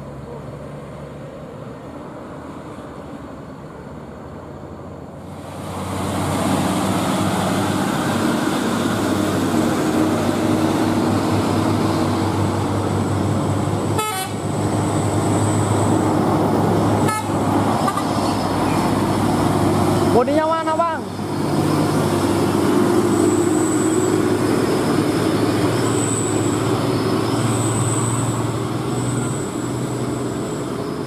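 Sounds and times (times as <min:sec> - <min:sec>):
truck diesel engine: 0:00.0 - 0:31.0
truck horn toots: 0:13.9 - 0:14.4, 0:17.0 - 0:18.4.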